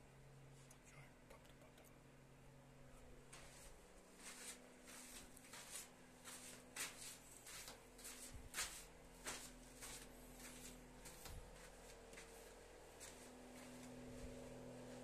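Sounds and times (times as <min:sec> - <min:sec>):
faint steady hum: 0:00.0 - 0:15.0
footsteps on sandy floor: 0:03.2 - 0:15.0.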